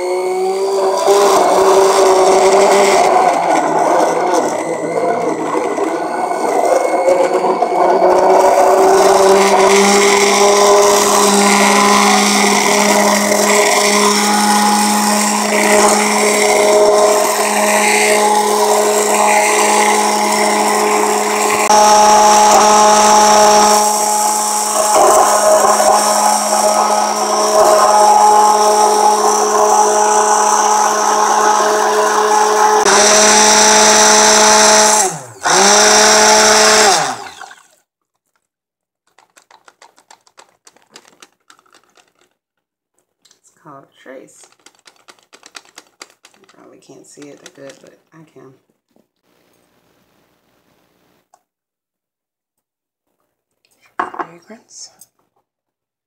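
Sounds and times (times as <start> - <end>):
immersion blender motor whine: 0.0 - 37.8.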